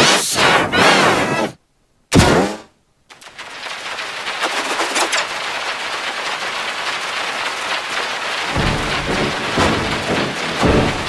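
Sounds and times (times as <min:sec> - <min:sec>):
cartoon sound effects crackling: 0:00.0 - 0:08.0
deep rumble: 0:08.4 - 0:11.0.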